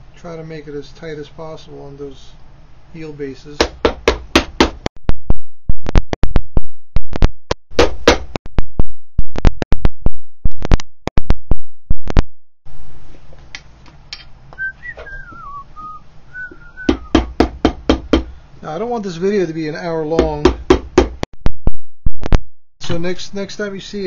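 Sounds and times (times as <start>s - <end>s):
hammer driving nails into leather: 7.7s - 8.4s
faint wavering whistle: 14.6s - 17.2s.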